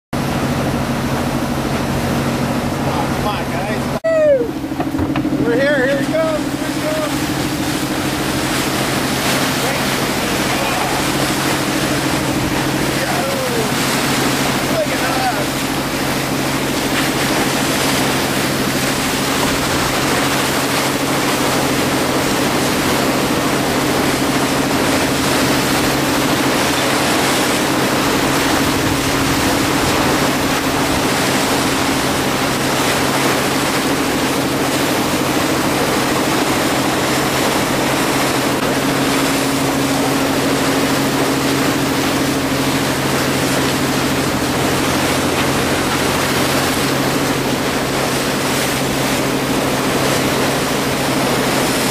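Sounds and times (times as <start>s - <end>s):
boat engine running: 0.1s - 51.9s
water rushing along hull: 0.2s - 51.9s.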